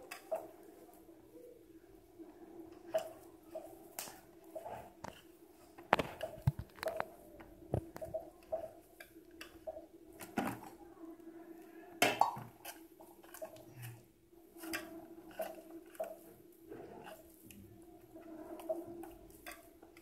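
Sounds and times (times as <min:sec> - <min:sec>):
hand kneading dough: 0:00.0 - 0:10.8
faint steady hum: 0:00.0 - 0:20.0.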